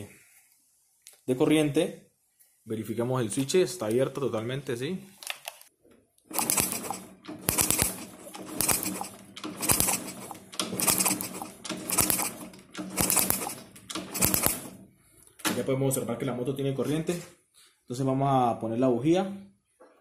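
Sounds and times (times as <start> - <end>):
kick-start gear clatter: 6.3 - 14.6
motorcycle engine kick-started: 6.3 - 14.7.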